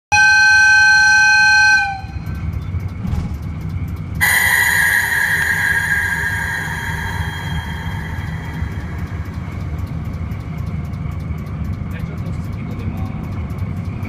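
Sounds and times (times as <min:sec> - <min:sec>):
locomotive horn blast: 0:00.1 - 0:02.1
diesel engine rumble: 0:01.8 - 0:14.0
loud hissing rush: 0:04.2 - 0:10.0.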